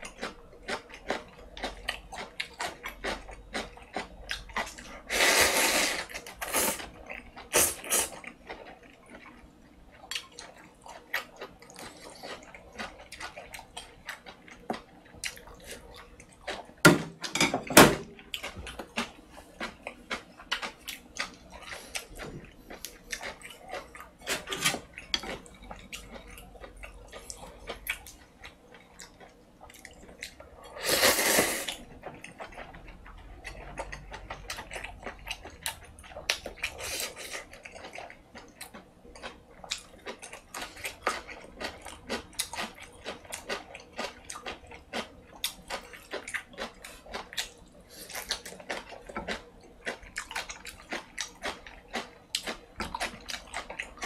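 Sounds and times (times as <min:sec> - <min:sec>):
slurping noodles: 0:05.1 - 0:06.9, 0:30.8 - 0:31.8
wet chewing: 0:18.2 - 0:54.0.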